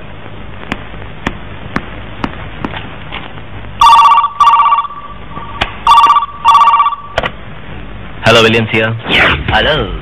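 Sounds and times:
telephone ringing: 0:03.8 - 0:07.2.

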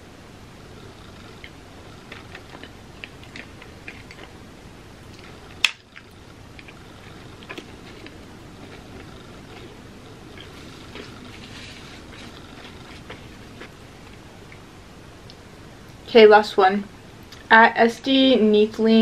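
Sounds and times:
chewing and lip smacks: 0:01.3 - 0:04.4, 0:05.1 - 0:14.6.

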